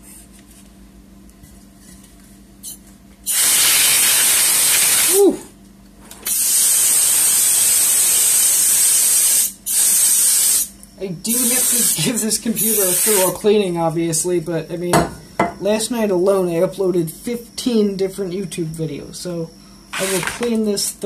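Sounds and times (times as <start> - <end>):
compressed air hissing: 2.6 - 5.2, 6.2 - 13.4.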